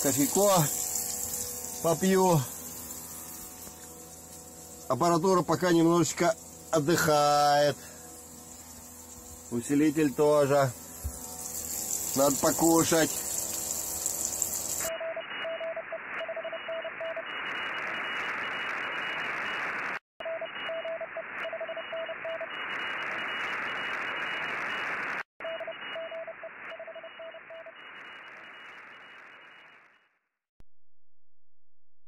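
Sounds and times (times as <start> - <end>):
radio receiver hiss: 0.0 - 14.9
morse code beeping: 14.8 - 17.2.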